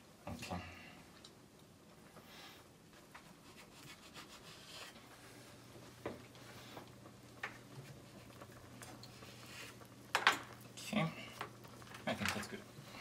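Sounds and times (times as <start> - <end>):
knife scraping strokes: 3.3 - 5.0.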